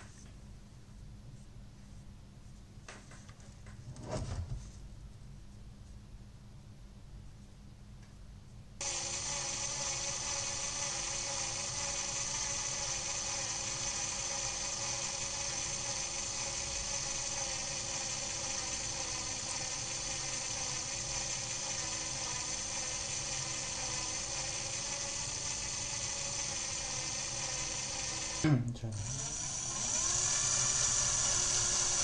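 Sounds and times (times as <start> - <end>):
cordless drill motor whining: 8.8 - 32.0.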